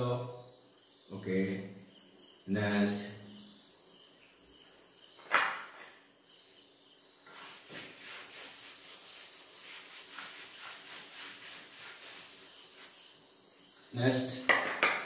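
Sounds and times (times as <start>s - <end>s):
blackboard being wiped: 7.2s - 13.2s.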